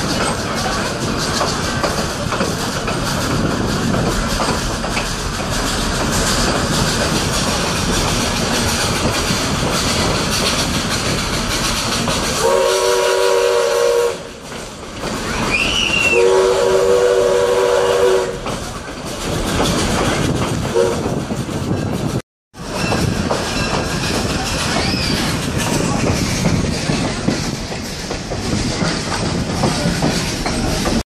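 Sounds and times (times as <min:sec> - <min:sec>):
railway car rumbling on track: 0:00.0 - 0:31.0
steam locomotive whistle: 0:12.3 - 0:14.4, 0:15.3 - 0:18.5, 0:20.7 - 0:21.1.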